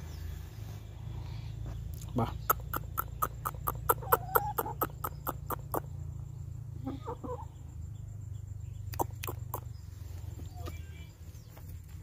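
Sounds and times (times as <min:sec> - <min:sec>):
rooster clucking: 0:02.2 - 0:05.9, 0:06.8 - 0:07.5, 0:08.9 - 0:09.7.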